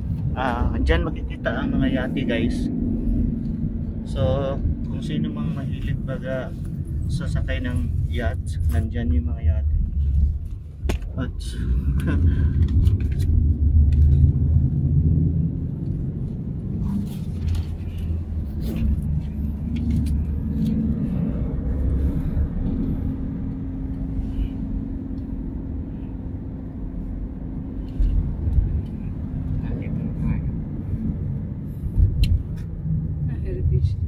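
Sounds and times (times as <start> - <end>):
car engine and road noise: 0.0 - 34.0.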